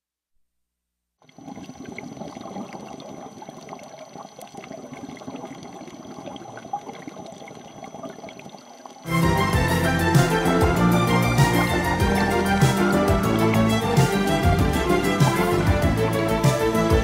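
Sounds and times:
loud music: 0:09.1 - 0:17.0.

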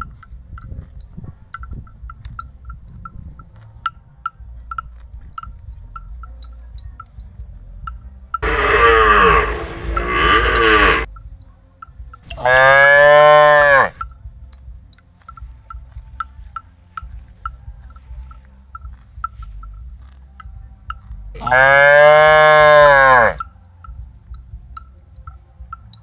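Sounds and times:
cattle mooing: 0:08.4 - 0:11.1, 0:12.4 - 0:14.0, 0:21.4 - 0:23.4.

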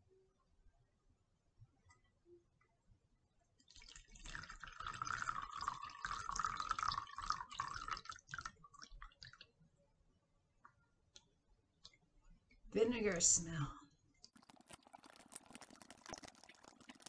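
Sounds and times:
liquid dripping: 0:03.6 - 0:09.6, 0:14.2 - 0:17.0
thick liquid pouring and splashing: 0:03.7 - 0:09.5, 0:14.3 - 0:17.0.

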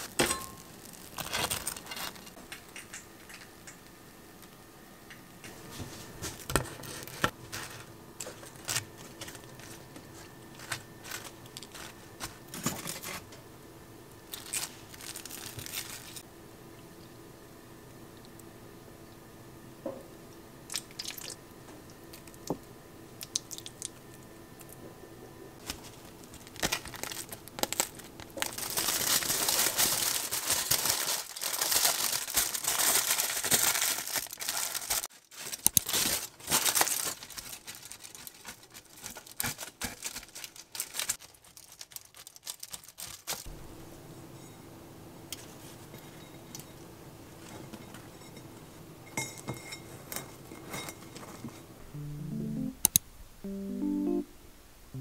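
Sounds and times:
crinkling and crunching rustle: 0:00.0 - 0:03.5, 0:05.6 - 0:13.3, 0:14.2 - 0:16.2, 0:25.6 - 0:43.5.

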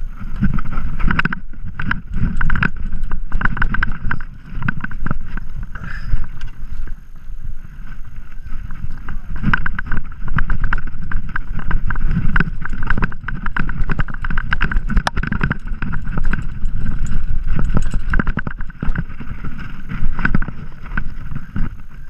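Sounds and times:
mountain bike rattling: 0:00.0 - 0:22.0
wind buffeting microphone: 0:00.0 - 0:22.0.

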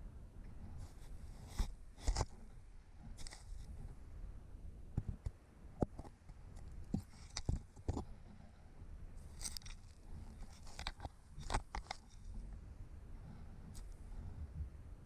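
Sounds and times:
low steady rumble: 0:00.0 - 0:15.0
camera scraping against brick: 0:00.7 - 0:03.9, 0:05.8 - 0:08.4, 0:09.2 - 0:12.6
crackles: 0:09.2 - 0:12.6.

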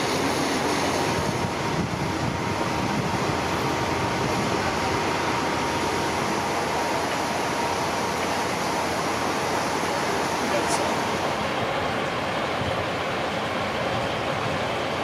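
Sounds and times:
faint steady whine: 0:00.0 - 0:15.0
fire engine pumps roaring: 0:00.0 - 0:15.0
water stream hissing: 0:00.0 - 0:15.0.

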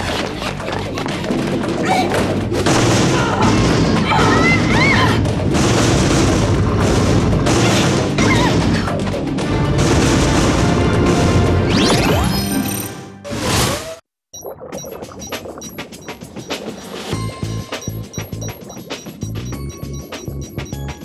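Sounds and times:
cartoon action music: 0:00.2 - 0:21.0
booms and crashes: 0:02.3 - 0:12.2.

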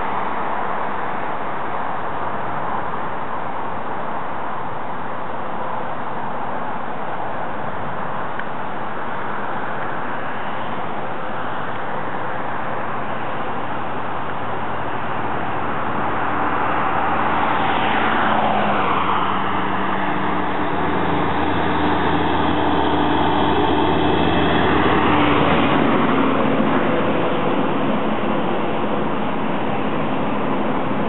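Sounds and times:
engine hum: 0:00.0 - 0:31.0
highway traffic noise: 0:00.0 - 0:31.0
vehicle passing by: 0:14.6 - 0:31.0.

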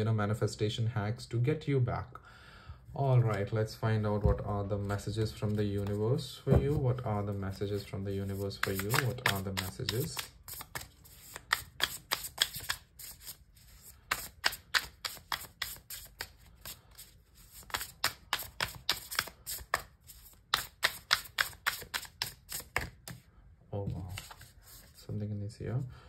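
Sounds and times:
cards being shuffled: 0:04.6 - 0:23.3, 0:23.9 - 0:25.0.

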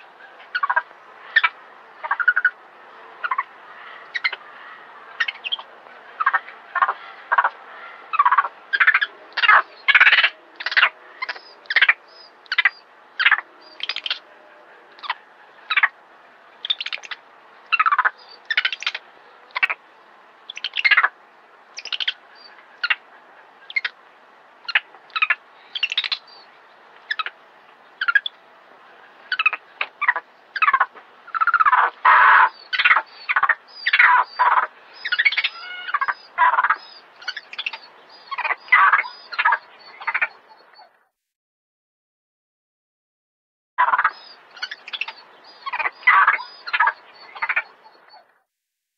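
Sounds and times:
monkey distress calls: 0:29.3 - 0:40.2.

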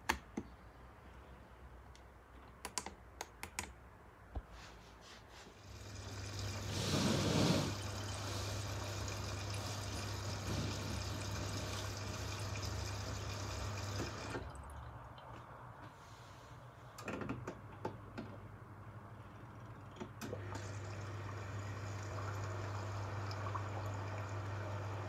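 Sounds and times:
water rushing into washing machine: 0:05.6 - 0:15.1, 0:20.0 - 0:25.0.

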